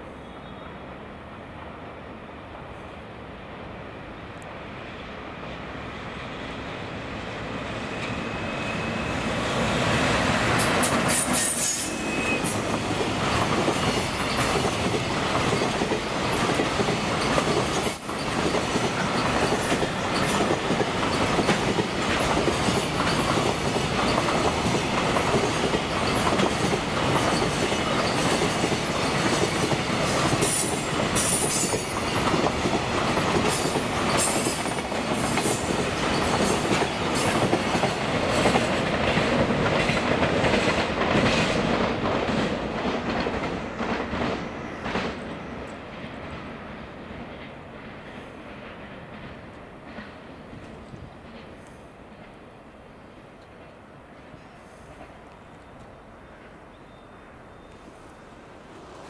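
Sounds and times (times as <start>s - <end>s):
train wheels rumbling on rail: 0.0s - 59.0s
high-pitched squeals from running gear: 7.8s - 9.8s, 11.1s - 12.6s.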